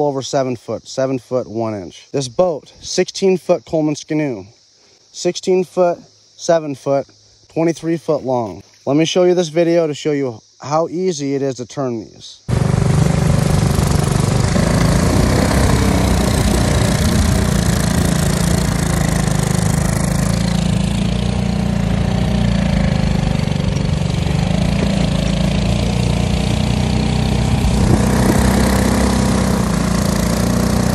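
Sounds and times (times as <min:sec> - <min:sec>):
small boat engine running: 0:12.5 - 0:30.9.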